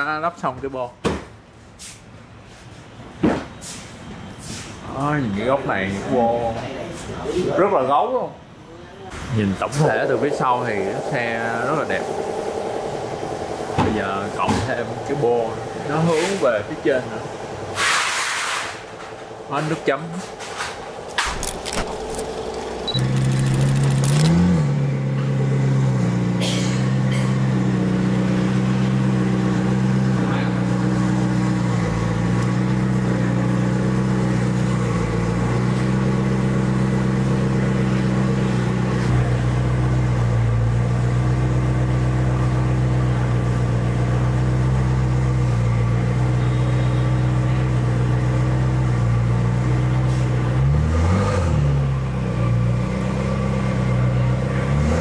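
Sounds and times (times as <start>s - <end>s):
car engine idling: 9.4s - 50.6s
car engine revving: 9.6s - 45.6s, 48.2s - 55.0s.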